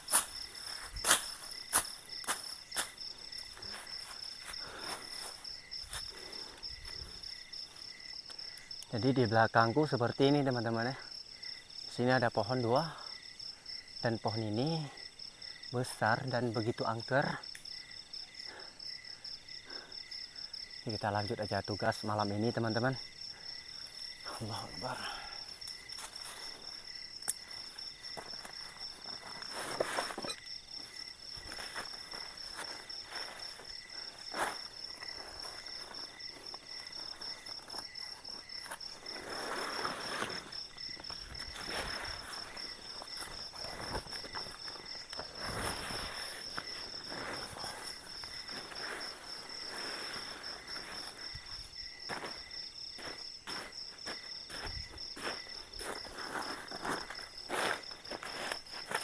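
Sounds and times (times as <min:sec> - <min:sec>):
high pulsing insect trill: 0:00.0 - 0:59.0
night insects chorus: 0:00.0 - 0:59.0
sheet rustling and crinkling: 0:28.2 - 0:30.3.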